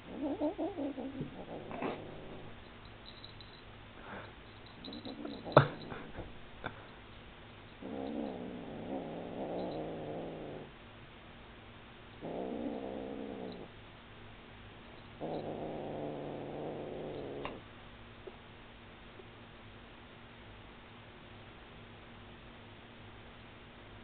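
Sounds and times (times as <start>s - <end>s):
kitten growling low: 0.0s - 2.6s, 4.8s - 6.4s, 7.8s - 10.7s, 12.2s - 13.7s, 15.2s - 17.6s.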